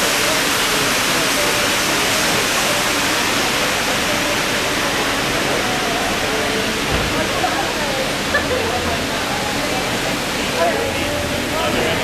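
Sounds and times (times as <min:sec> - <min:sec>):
water streaming down a wall: 0:00.0 - 0:12.0.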